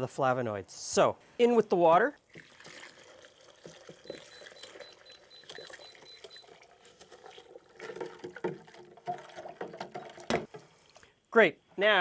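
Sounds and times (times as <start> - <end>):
hot water pouring: 1.8 - 11.2.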